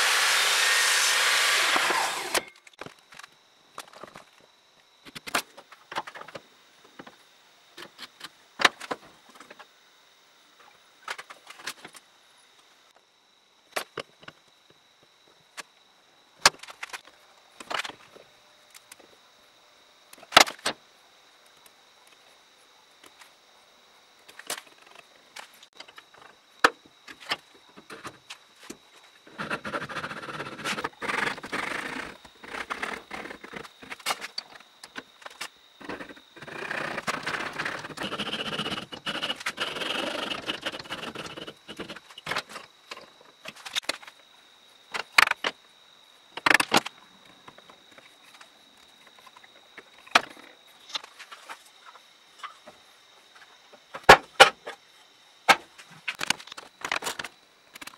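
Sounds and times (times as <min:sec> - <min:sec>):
hand saw cutting wood: 0:00.0 - 0:02.5.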